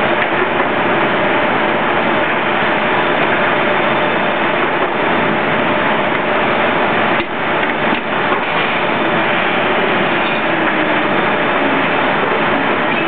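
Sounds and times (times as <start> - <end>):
machinery running: 0.0 - 13.0.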